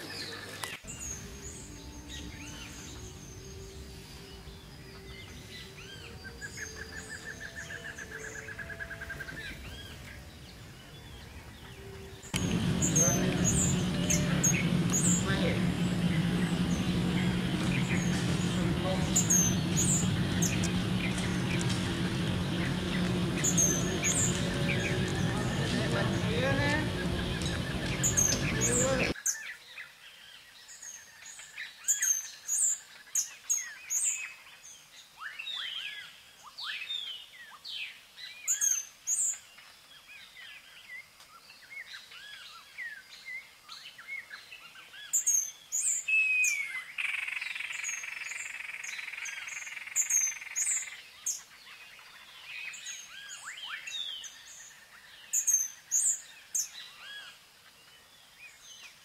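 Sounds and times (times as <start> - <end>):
small birds chirping: 0.0 - 59.0
steady hiss: 12.4 - 29.2.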